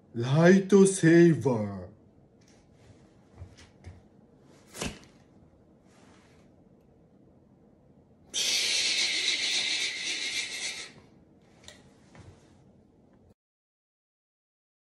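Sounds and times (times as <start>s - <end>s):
toy lightsaber hissing buzz: 8.4s - 11.0s.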